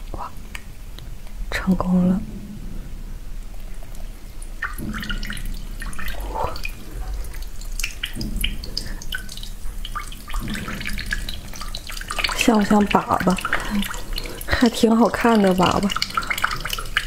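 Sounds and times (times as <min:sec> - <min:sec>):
liquid gurgles: 0:02.7 - 0:17.0
cola trickling and dripping: 0:03.3 - 0:17.0.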